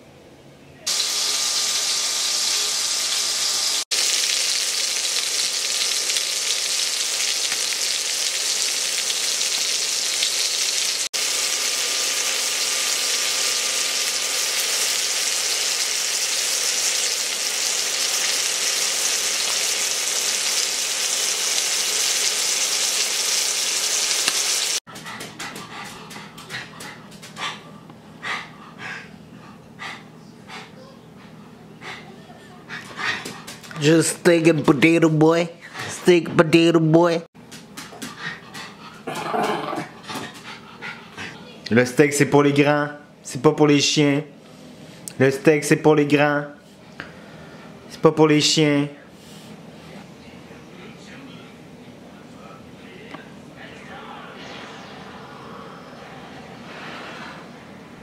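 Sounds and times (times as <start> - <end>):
steak sizzling in a pan: 0.9 - 24.8.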